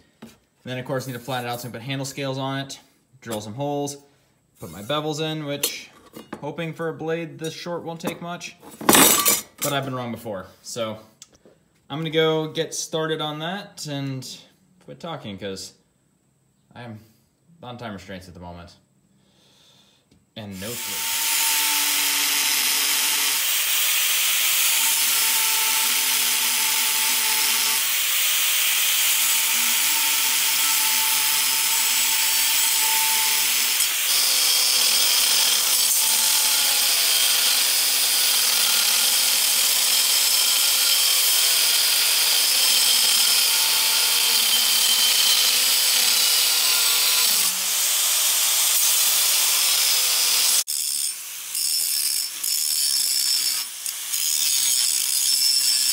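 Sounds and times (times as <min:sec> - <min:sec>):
angle grinder grinding steel: 0:20.5 - 0:55.9.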